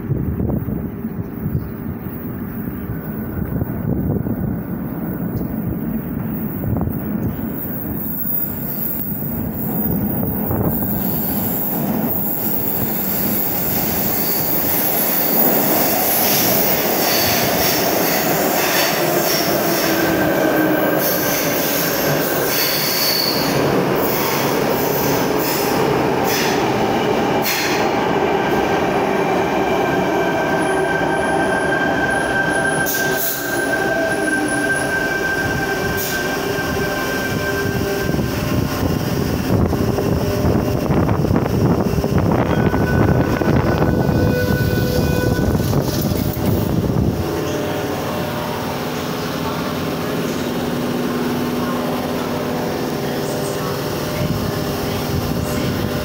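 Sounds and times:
train rolling noise: 0:00.0 - 0:56.0
train rumbling in tunnel: 0:00.0 - 0:56.0
train wheel squeal: 0:06.3 - 0:26.8, 0:27.4 - 0:28.6, 0:29.4 - 0:39.0, 0:42.4 - 0:46.7.

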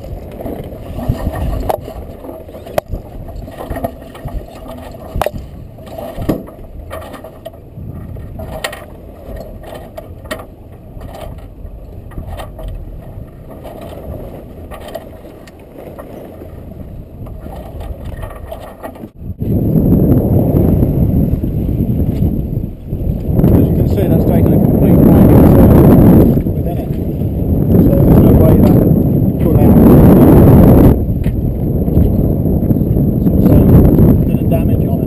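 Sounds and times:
wind and sea rushing: 0:00.0 - 0:35.0
rigging clicks and knocks: 0:00.1 - 0:16.6, 0:17.2 - 0:19.2.

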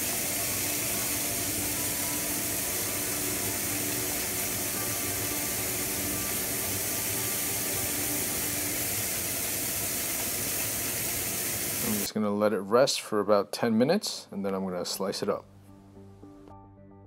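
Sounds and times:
steaks sizzling on a griddle: 0:00.0 - 0:12.1.

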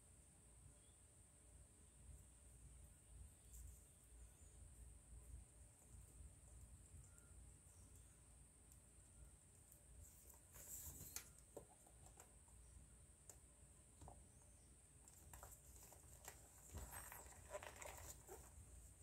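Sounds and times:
faint high hiss: 0:00.0 - 0:11.6
leather lace rustling and scraping: 0:15.1 - 0:19.0.

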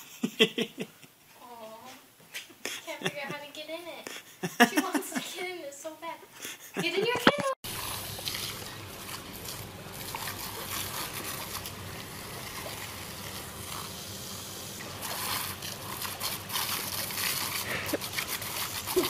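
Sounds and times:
squirt gun water jet hissing: 0:07.6 - 0:19.0
water splattering on grass: 0:07.7 - 0:13.7.

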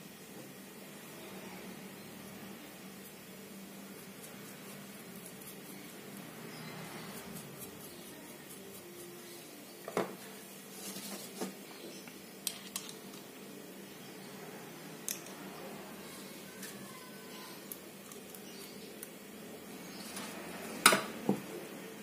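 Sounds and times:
rubbing sound: 0:10.7 - 0:11.5.

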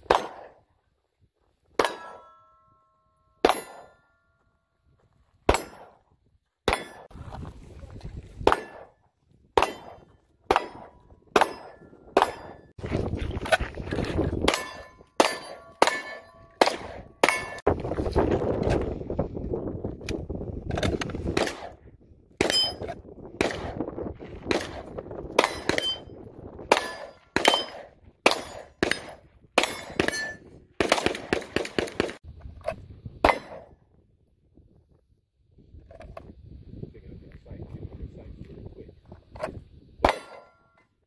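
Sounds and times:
pistol shots: 0:00.0 - 0:00.6, 0:05.5 - 0:06.0, 0:09.6 - 0:12.6, 0:14.4 - 0:17.6, 0:21.3 - 0:21.8, 0:23.4 - 0:26.0, 0:26.6 - 0:32.2, 0:33.2 - 0:33.7.

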